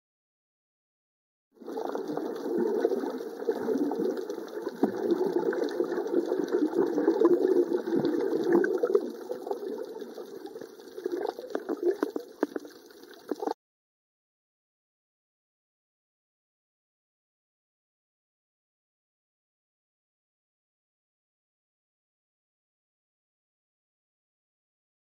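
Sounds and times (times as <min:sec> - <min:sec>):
crackling clicks underwater: 0:01.6 - 0:13.6
muffled underwater rushing water: 0:01.6 - 0:13.6.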